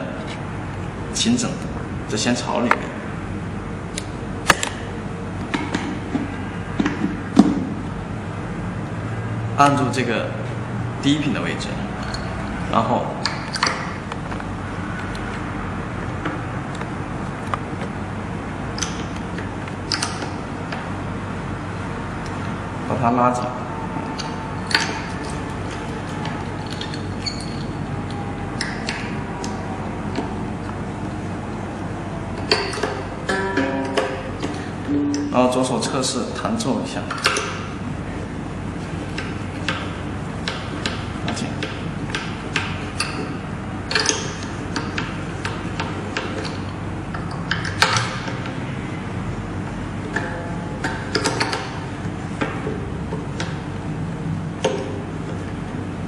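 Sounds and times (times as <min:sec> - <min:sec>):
string squeaks: 0:23.6 - 0:29.4
tuning peg clicks: 0:32.4 - 0:36.1.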